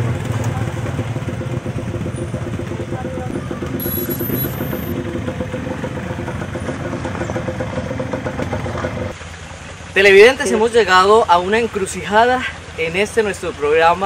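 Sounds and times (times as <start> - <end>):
quad bike engines running: 0.0 - 9.2.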